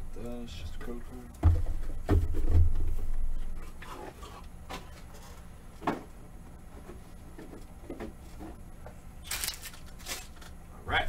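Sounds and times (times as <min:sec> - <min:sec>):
low steady hum: 0:00.0 - 0:11.0
soft knocks: 0:01.4 - 0:03.0.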